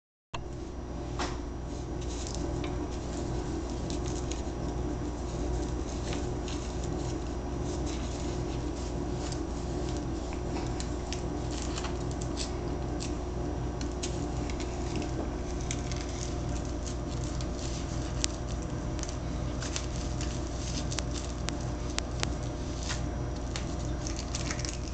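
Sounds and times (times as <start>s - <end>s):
steady low hum: 0.4s - 24.9s
cat licking and chewing toy: 13.8s - 24.9s.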